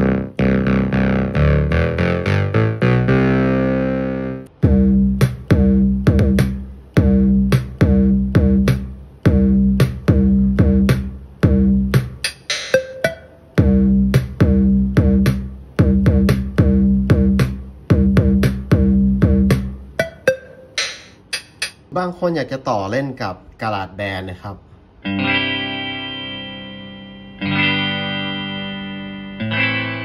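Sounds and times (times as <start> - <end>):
drum machine beat through speaker: 4.5 - 21.9.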